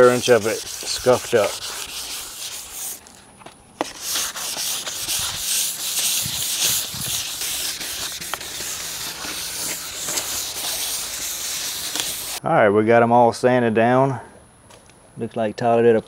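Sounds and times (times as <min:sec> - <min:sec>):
sandpaper scratching plastic: 0:00.0 - 0:03.2, 0:03.8 - 0:12.4.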